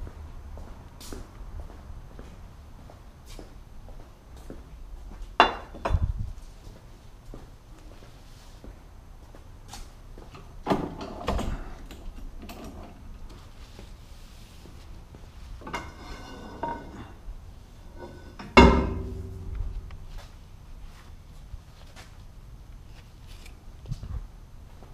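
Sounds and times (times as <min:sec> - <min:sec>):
metal tubing knocking and clanking: 0:18.4 - 0:20.0.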